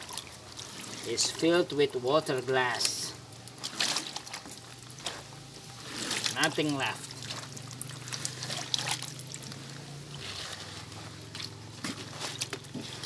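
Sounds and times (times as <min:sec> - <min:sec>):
wet cloth squelching: 0:00.0 - 0:01.7, 0:02.7 - 0:13.0
liquid dribbling off fabric: 0:05.8 - 0:10.7.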